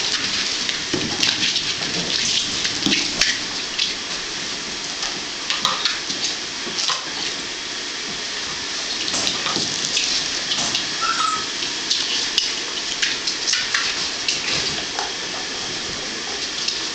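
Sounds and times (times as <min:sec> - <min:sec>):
high squeak: 0:11.0 - 0:11.6.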